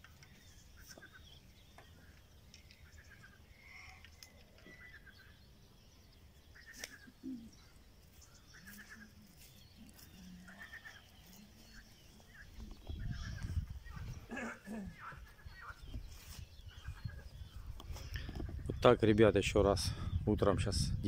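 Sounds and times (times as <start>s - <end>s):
small birds chirping: 0.0s - 21.0s
wind rumbling on microphone: 7.5s - 14.4s, 15.1s - 21.0s.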